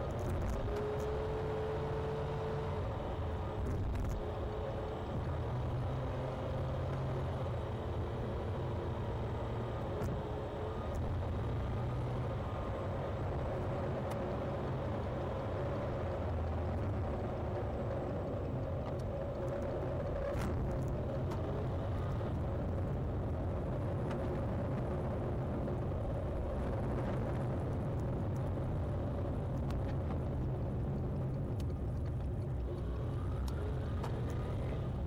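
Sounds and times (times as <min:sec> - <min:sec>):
car engine and tyre rumble: 0:00.0 - 0:35.0.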